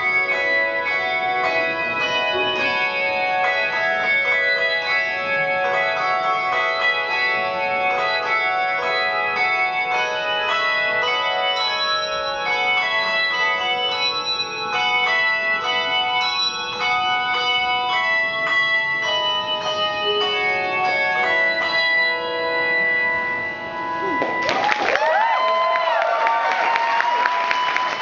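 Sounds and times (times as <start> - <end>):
handbells ringing a melody: 0.0 - 28.0
audience whistling and cheering: 24.2 - 28.0.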